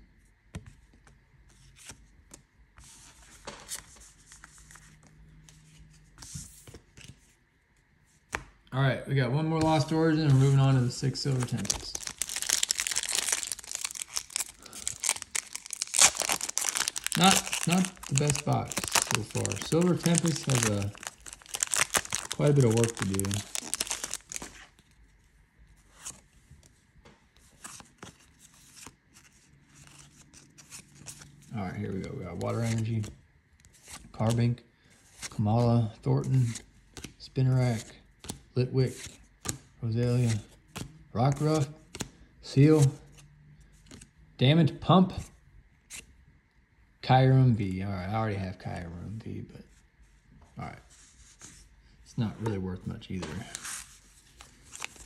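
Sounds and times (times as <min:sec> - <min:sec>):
cards rustling on mat: 0:09.6 - 0:24.8, 0:52.4 - 0:55.0.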